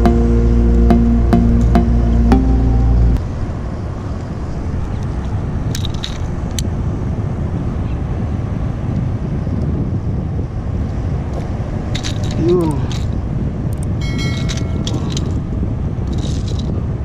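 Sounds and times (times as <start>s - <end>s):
low outdoor rumble: 0.0s - 3.3s.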